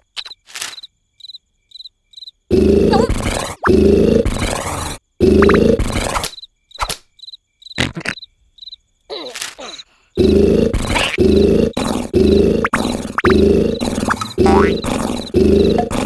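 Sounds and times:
crickets chirping: 0.0s - 16.0s
cartoon snoring: 2.5s - 6.3s, 9.6s - 16.0s.

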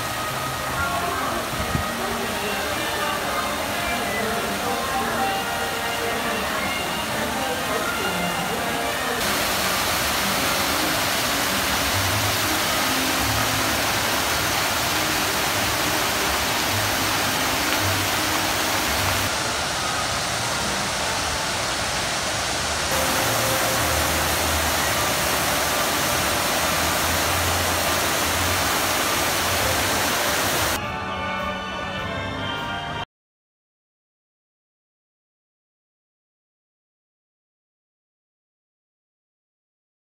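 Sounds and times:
fountain water splashing: 0.0s - 30.8s.

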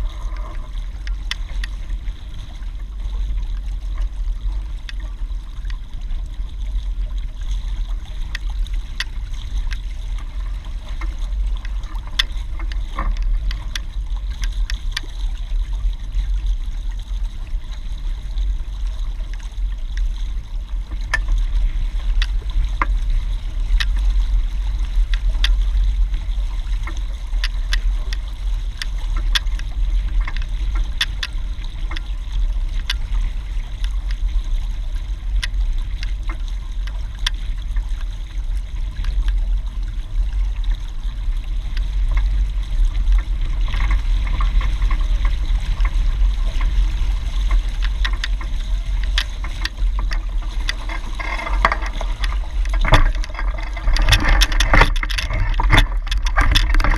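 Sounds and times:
small splashes and drips: 0.0s - 56.9s
water rushing along hull: 0.0s - 56.9s
wind rumble on microphone: 0.0s - 56.9s.

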